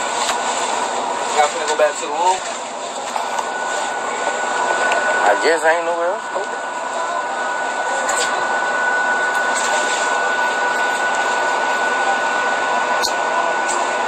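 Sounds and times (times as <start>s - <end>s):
loud rushing machine noise: 0.0s - 14.0s
thin high whine: 0.0s - 14.0s.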